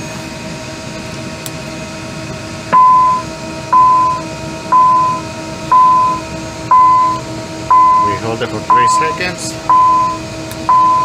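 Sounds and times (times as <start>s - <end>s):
steady cockpit hum: 0.0s - 11.0s
cockpit alert beeping: 5.8s - 11.0s.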